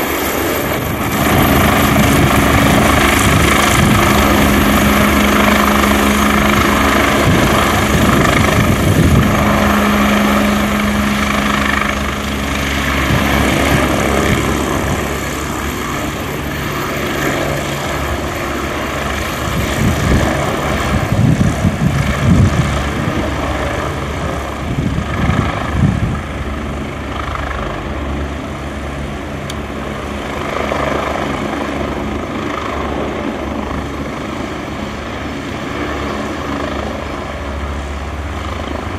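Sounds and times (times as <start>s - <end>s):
helicopter rotor beat: 0.0s - 38.9s
high turbine whine: 0.0s - 38.9s
low rumbling: 1.0s - 16.5s.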